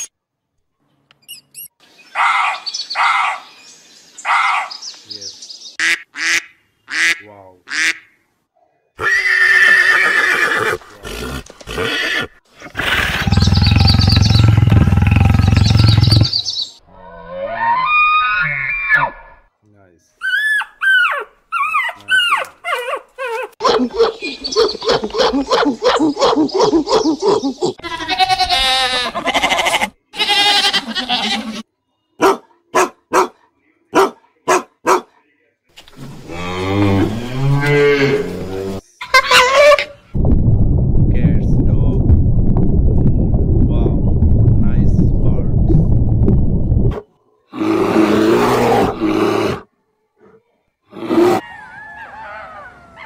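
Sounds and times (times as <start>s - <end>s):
duck quacking: 5.8s - 8.2s
horse whinnying: 9.0s - 16.3s
horse snorting: 10.3s - 16.4s
goat bleating: 27.8s - 31.6s
low rumble: 40.2s - 47.0s.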